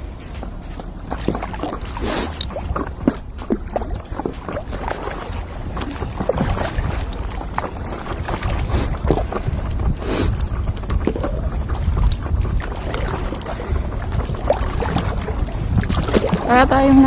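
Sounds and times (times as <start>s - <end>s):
water splashing from paddle: 0.0s - 16.6s
wind rumble on microphone: 0.0s - 17.0s.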